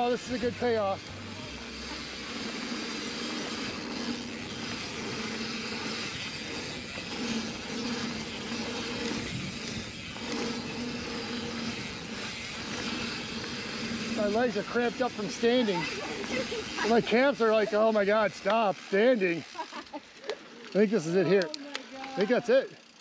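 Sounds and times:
low hum: 0:00.0 - 0:16.9
bike riding noise rush: 0:00.0 - 0:23.0.

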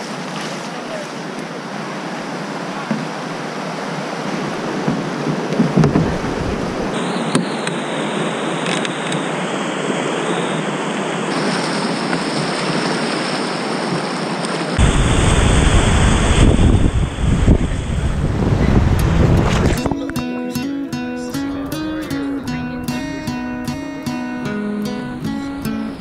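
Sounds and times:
whitewater rapids rushing: 0:00.0 - 0:18.0
low rumble: 0:14.8 - 0:19.9.

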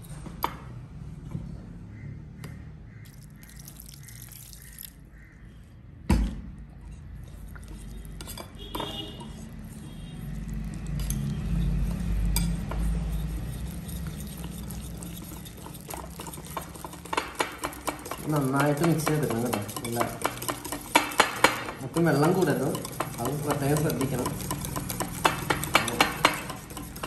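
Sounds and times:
whisk clinking against bowl: 0:07.3 - 0:27.0.

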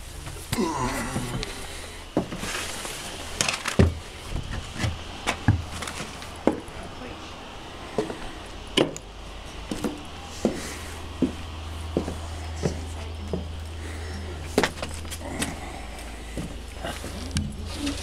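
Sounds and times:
steady low hum: 0:00.0 - 0:18.0
footsteps on boat deck: 0:02.1 - 0:03.2, 0:07.9 - 0:17.7.

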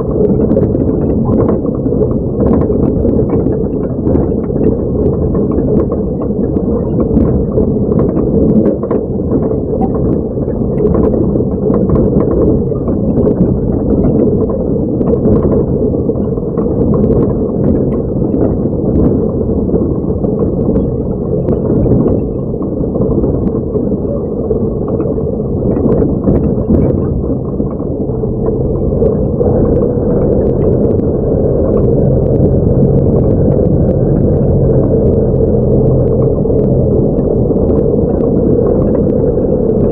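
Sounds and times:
truck engine running: 0:28.2 - 0:39.9.

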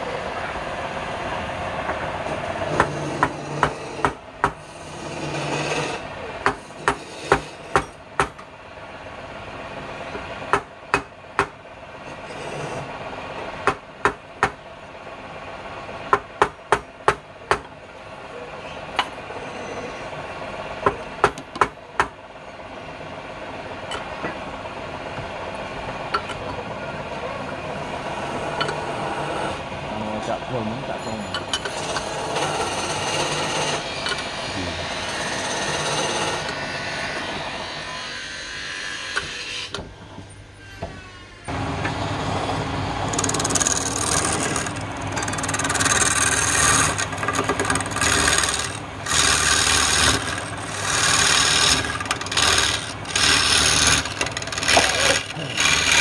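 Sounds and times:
steady hum: 0:00.0 - 0:38.9, 0:41.5 - 0:56.0
hammer-like blows on wood: 0:02.7 - 0:04.7, 0:06.4 - 0:08.4, 0:16.1 - 0:17.7.

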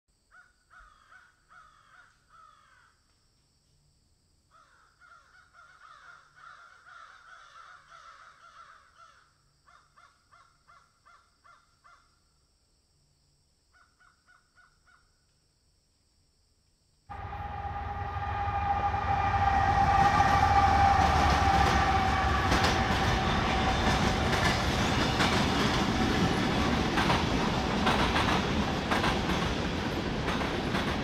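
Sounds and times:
crows cawing: 0:00.3 - 0:03.0, 0:04.5 - 0:12.1.

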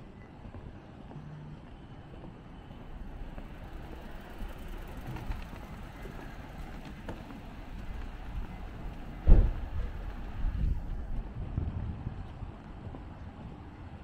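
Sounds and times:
vehicle traffic rumble: 0:00.0 - 0:14.0.

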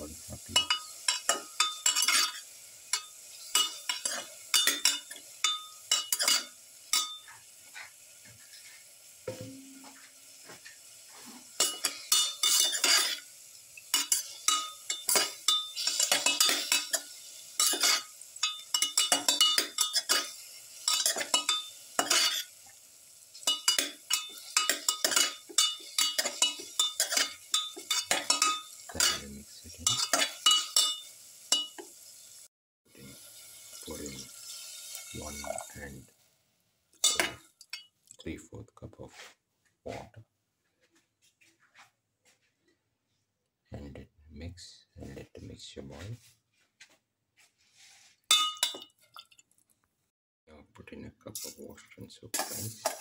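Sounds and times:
faint sizzle: 0:00.0 - 0:38.6, 0:51.0 - 0:53.0
metal spoon scraping a pot: 0:00.6 - 0:07.4, 0:11.6 - 0:13.3, 0:13.9 - 0:22.5, 0:23.4 - 0:29.2, 0:29.8 - 0:31.9, 0:52.4 - 0:53.0.

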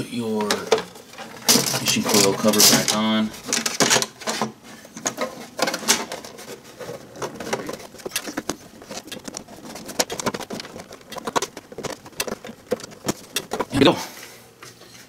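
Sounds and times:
metal cover clicking and tapping: 0:07.5 - 0:13.8.

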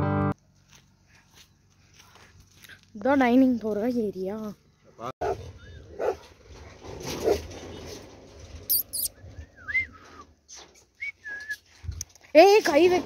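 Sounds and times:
footsteps on path: 0:00.4 - 0:04.0.

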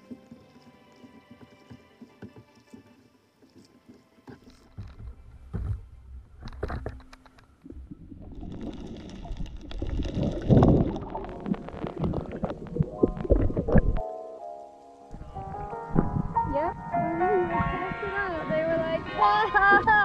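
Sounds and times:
seawater sloshing and gurgling: 0:06.3 - 0:14.0.

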